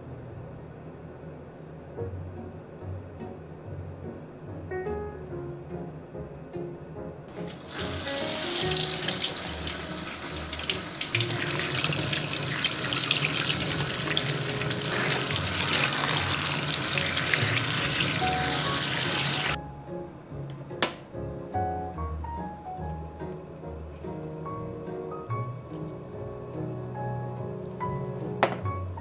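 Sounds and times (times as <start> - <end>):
faucet water running onto fruit: 7.4 - 19.6.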